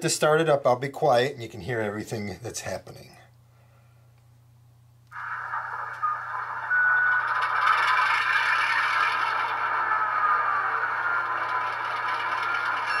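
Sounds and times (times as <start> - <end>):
diesel locomotive engine starting: 5.3 - 13.0.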